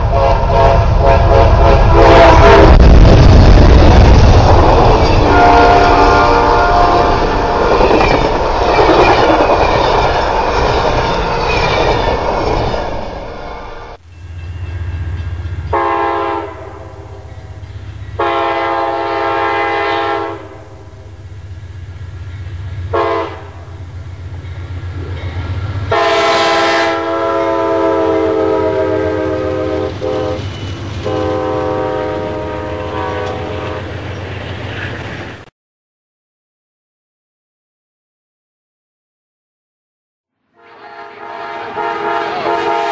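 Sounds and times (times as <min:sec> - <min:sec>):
locomotive air horn blasts: 0:00.0 - 0:02.9, 0:05.2 - 0:07.7, 0:15.7 - 0:21.2, 0:22.9 - 0:23.8, 0:25.9 - 0:33.9, 0:40.5 - 0:42.9
train rumbling: 0:00.0 - 0:35.5, 0:40.6 - 0:42.9.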